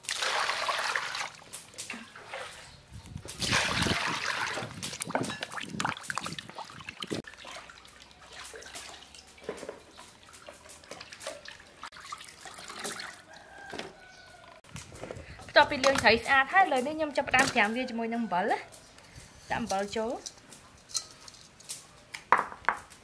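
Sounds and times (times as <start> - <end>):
hands sloshing fish in water: 0.0 - 1.4, 3.3 - 13.3.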